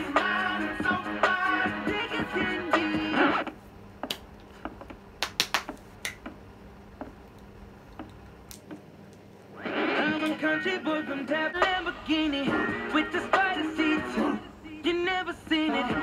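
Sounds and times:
background music with singing: 0.0 - 3.5, 9.6 - 16.0
faint steady hum: 0.0 - 16.0.

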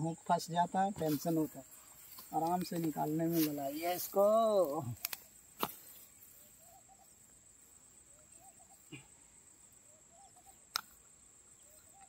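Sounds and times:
high insect drone: 0.0 - 12.0
sharp click: 5.0 - 5.8, 10.7 - 11.1
distant bird warbling: 5.8 - 7.4, 8.0 - 10.7.

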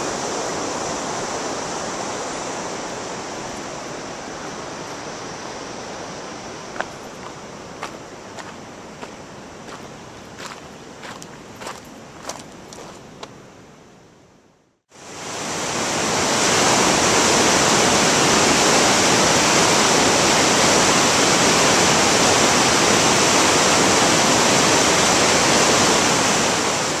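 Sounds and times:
fast-flowing river water: 0.0 - 13.0, 15.0 - 27.0.

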